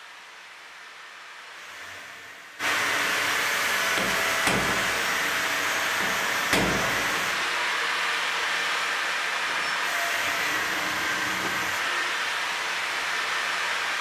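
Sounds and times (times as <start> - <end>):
grinder disc spinning freely: 2.6 - 7.5, 10.0 - 13.2
angle grinder cutting steel: 2.6 - 7.6, 9.8 - 14.0
sharp knocks: 3.9 - 7.4.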